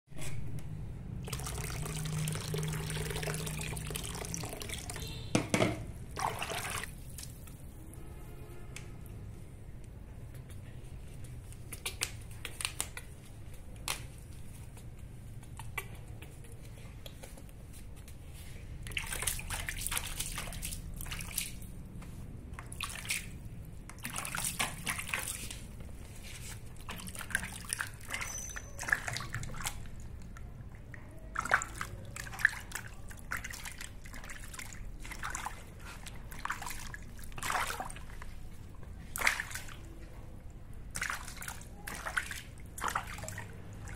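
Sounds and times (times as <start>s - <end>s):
water dripping: 1.2s - 5.4s
water splashing in plastic basin: 1.2s - 7.6s, 18.8s - 21.9s, 22.5s - 40.0s, 40.8s - 43.9s.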